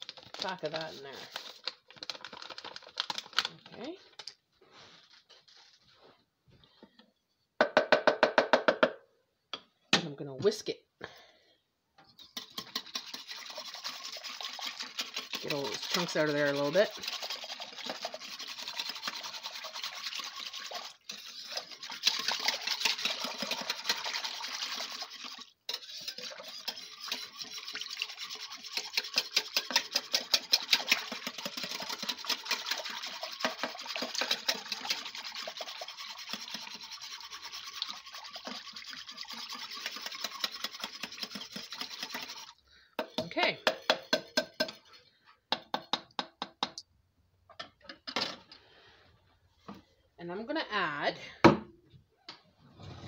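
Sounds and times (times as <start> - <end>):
wire whisk beating liquid: 0.0 - 3.3, 12.2 - 44.8.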